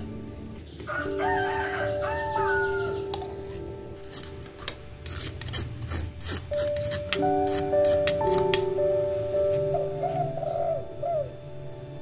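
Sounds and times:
soft background music: 0:00.0 - 0:12.0
rooster crowing: 0:00.9 - 0:03.2.

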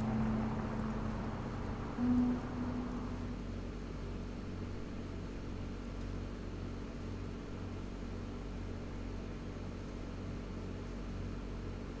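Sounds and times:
low hum: 0:00.0 - 0:05.0
steady background noise: 0:00.0 - 0:12.0.

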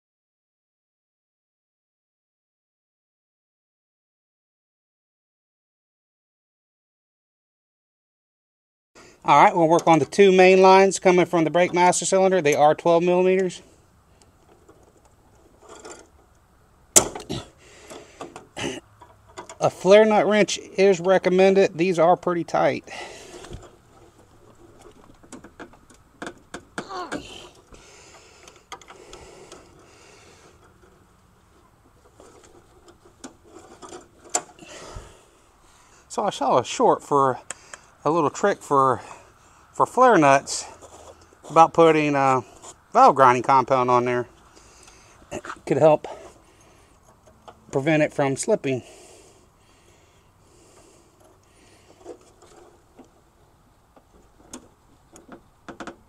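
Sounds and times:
wrench scraping metal: 0:14.5 - 0:16.3, 0:32.1 - 0:34.6.

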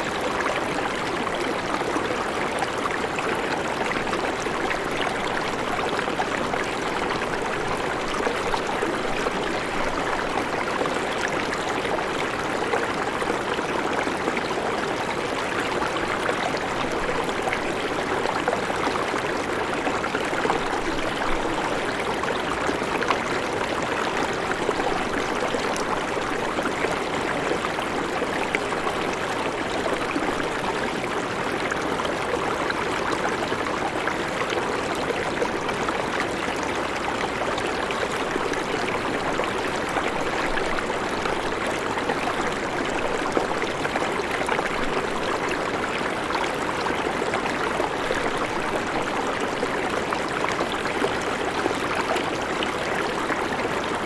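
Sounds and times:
river water babbling over stones: 0:00.0 - 0:54.0.

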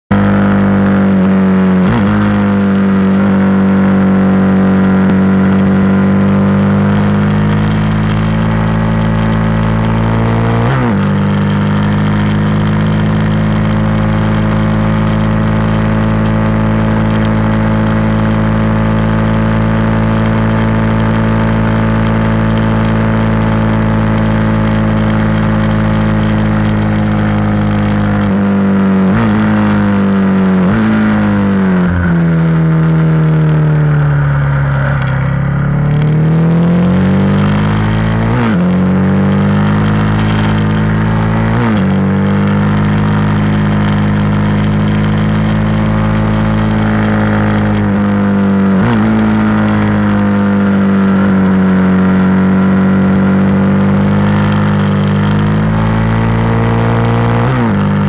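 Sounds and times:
motorcycle engine revving high: 0:00.0 - 0:58.0
gear change: 0:19.9 - 0:58.0.

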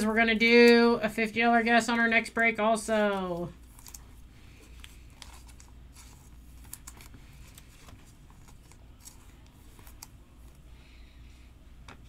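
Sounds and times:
foil wrapper crinkling: 0:03.2 - 0:10.1
fingers handling trading cards: 0:03.2 - 0:10.6.

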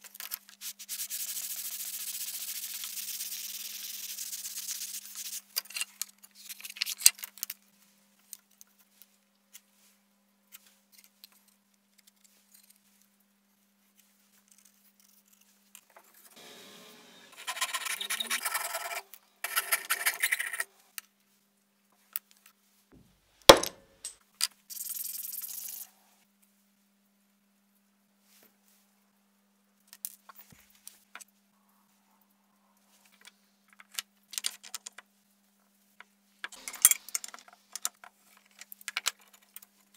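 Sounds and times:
sandpaper rubbing on wood: 0:00.6 - 0:05.4.

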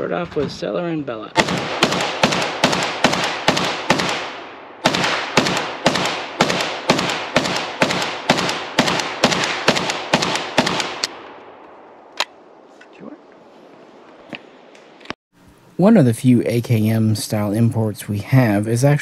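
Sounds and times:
rifle shots echoing: 0:01.4 - 0:12.6.

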